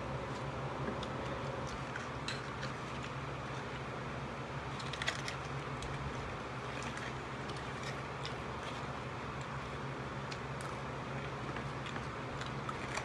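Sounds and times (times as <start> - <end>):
steady low hum: 0.0 - 13.0
chewing: 4.7 - 13.0.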